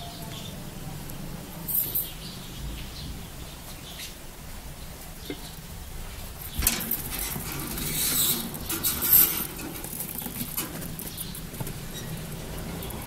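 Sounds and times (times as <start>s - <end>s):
wire birdcage rustling and scraping: 6.2s - 13.0s.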